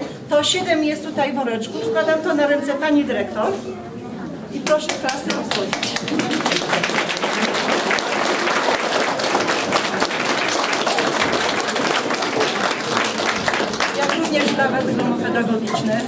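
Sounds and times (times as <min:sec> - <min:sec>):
crowd applauding: 0:04.7 - 0:14.7.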